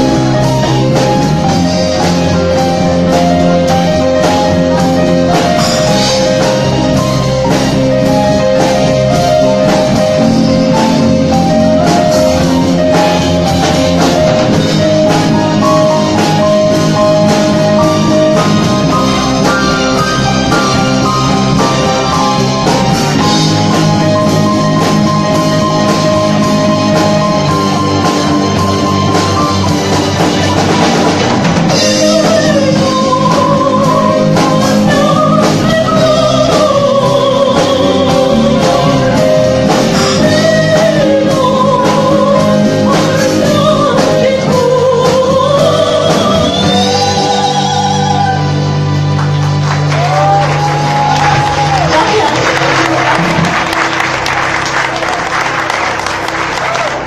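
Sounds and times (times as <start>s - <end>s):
drum kit: 0.0s - 57.0s
electric guitar: 0.0s - 57.0s
person singing: 31.7s - 49.0s.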